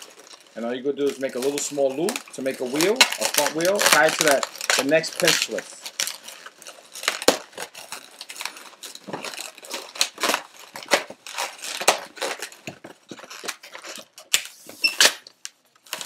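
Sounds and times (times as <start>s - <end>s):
balloons squeaking and crinkling: 0.0s - 16.0s.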